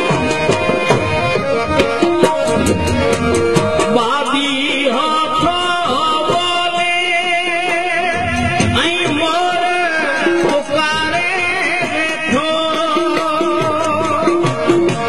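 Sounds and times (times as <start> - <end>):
wavering held melodic notes: 0.0 - 6.2
hand drum percussion: 0.0 - 15.0.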